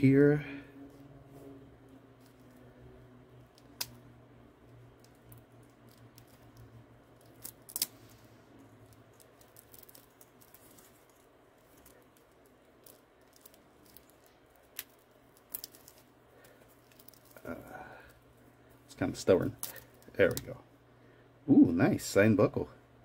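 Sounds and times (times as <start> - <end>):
plastic wrap crinkling: 4.8 - 17.8.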